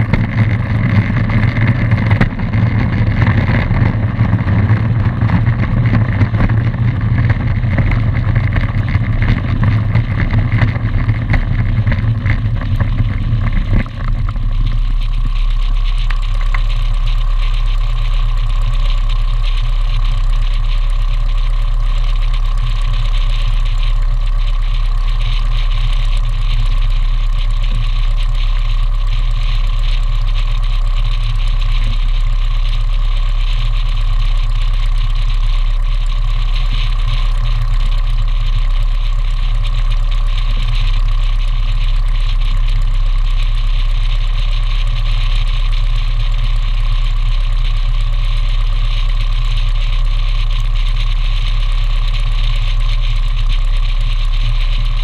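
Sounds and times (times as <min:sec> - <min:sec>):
light aircraft engine and propeller: 0:00.0 - 0:55.0.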